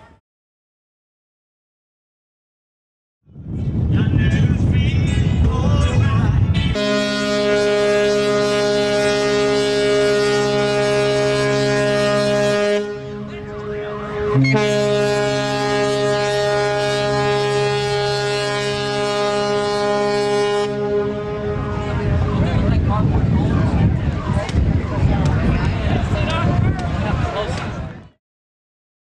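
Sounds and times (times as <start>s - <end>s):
ship horn blasts: 6.7s - 22.8s.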